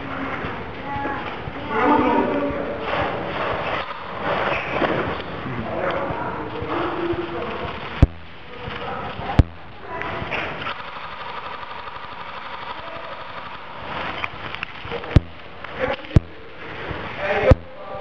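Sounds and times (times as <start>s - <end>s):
airsoft gun shots: 10.4s - 14.4s.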